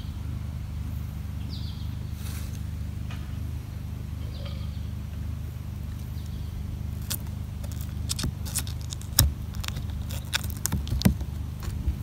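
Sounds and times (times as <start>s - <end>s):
bird chirping: 1.4s - 2.2s, 3.7s - 5.0s, 5.9s - 11.5s.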